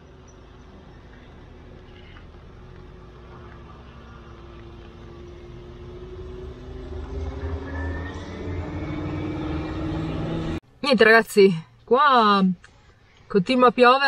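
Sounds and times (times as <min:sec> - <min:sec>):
vehicle engine approaching: 0:00.0 - 0:10.7.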